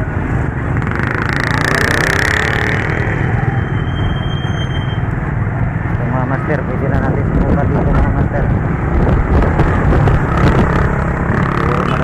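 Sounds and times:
road noise: 0.0 - 12.0
motorcycle engine running: 8.8 - 12.0.

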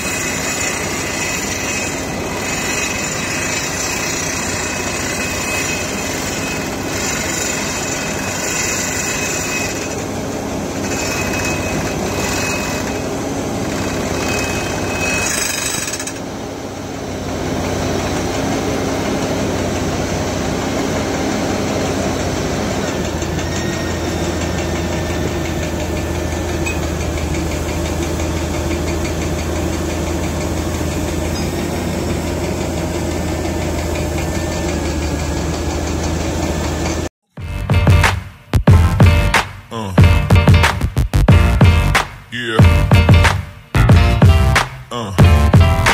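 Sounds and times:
drill rig engine and drilling: 0.0 - 40.7, 41.3 - 45.9.

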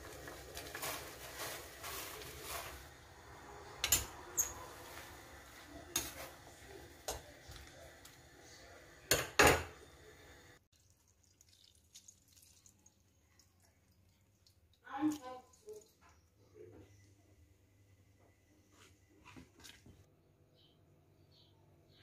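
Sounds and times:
water boiling in a pot: 0.0 - 16.4.

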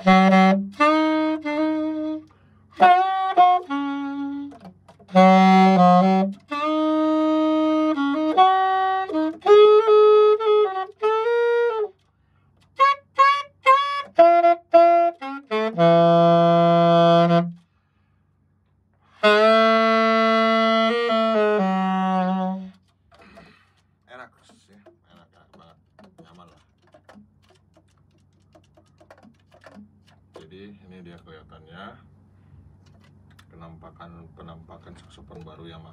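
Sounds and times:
alto saxophone solo: 0.0 - 12.0, 12.6 - 17.7, 19.1 - 22.9.

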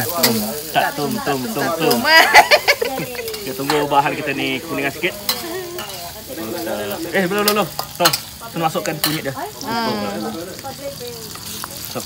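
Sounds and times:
food sizzling in a wok: 0.0 - 12.0
metal spatula scraping: 4.8 - 6.7.

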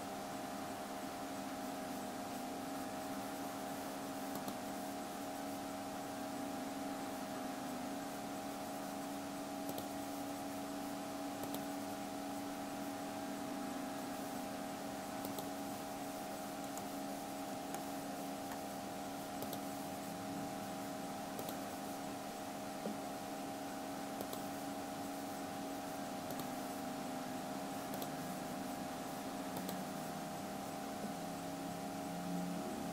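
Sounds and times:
computer fan hum: 0.0 - 32.9
faint mouse clicks: 4.3 - 4.6, 9.6 - 10.0, 11.4 - 11.7, 15.2 - 15.5, 16.6 - 16.9, 17.7 - 17.9, 19.4 - 19.7, 21.4 - 21.6, 24.2 - 24.5, 26.2 - 26.6, 27.9 - 28.1, 29.6 - 29.8.

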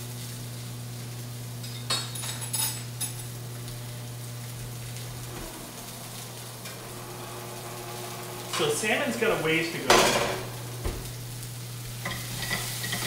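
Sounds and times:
tomatoes sizzling in skillet: 0.0 - 13.0
cookware clinking: 1.6 - 3.3, 12.0 - 13.0
low hum: 2.7 - 12.0.

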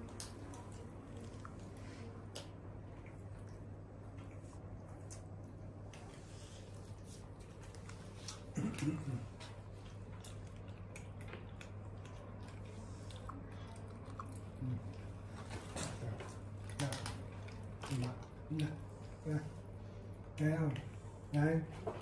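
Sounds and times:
steady low hum: 0.0 - 22.0
monkey chewing and biting: 9.4 - 18.7.

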